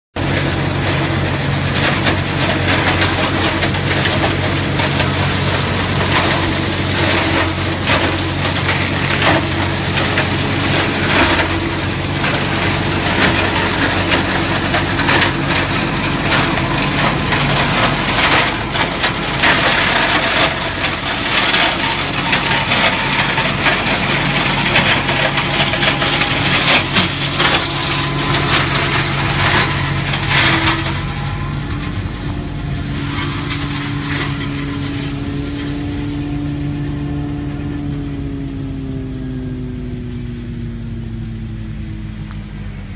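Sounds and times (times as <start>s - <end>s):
shredder crunching branches: 0.1s - 42.9s
tractor engine running: 0.1s - 42.9s.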